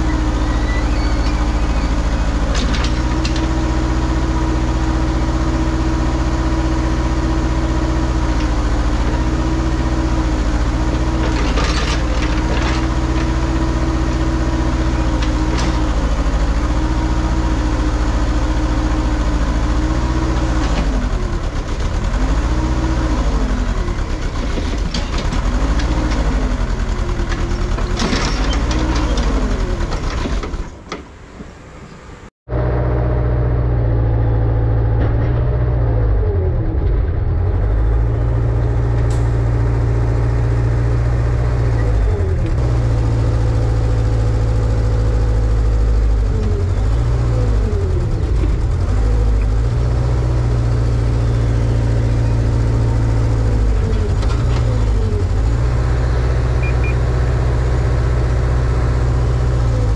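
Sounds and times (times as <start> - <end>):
excavator diesel engine under load: 0.0 - 59.9.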